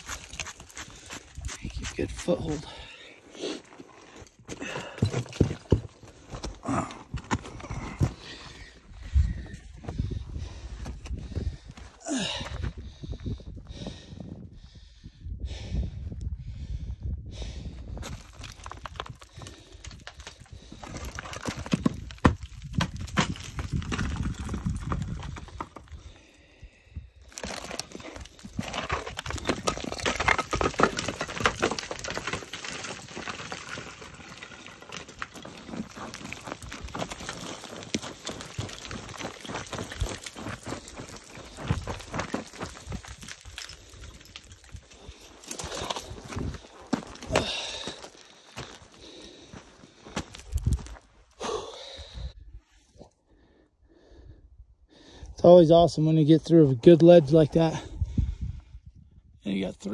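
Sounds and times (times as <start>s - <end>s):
small stones clattering: 0.0s - 2.8s, 18.0s - 26.1s, 27.2s - 51.1s
boots crunching on loose rock: 0.0s - 12.8s, 17.9s - 26.2s, 27.2s - 52.2s.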